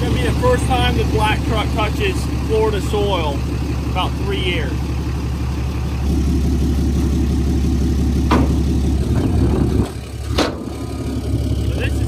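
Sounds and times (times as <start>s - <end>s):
truck engine idling: 0.0s - 12.0s
steel ramps knocking: 8.3s - 8.8s.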